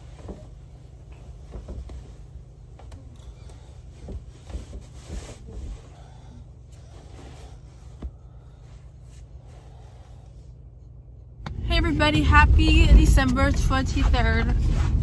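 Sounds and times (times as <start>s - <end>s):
soft bumps: 0.0s - 10.0s
steady low hum: 0.0s - 15.0s.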